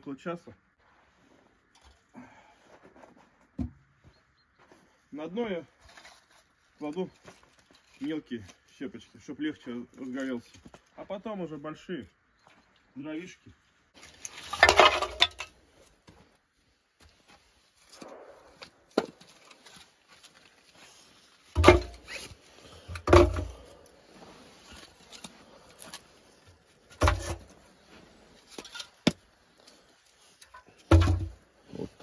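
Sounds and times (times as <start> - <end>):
wood clattering: 14.0 - 16.2, 21.4 - 26.1, 26.8 - 32.0
logs knocking: 21.6 - 22.1, 22.9 - 23.6, 27.0 - 27.5, 30.6 - 31.4.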